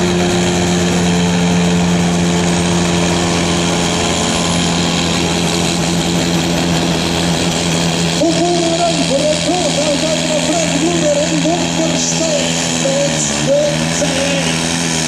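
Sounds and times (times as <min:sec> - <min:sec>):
tractor engine idling: 0:00.0 - 0:15.0.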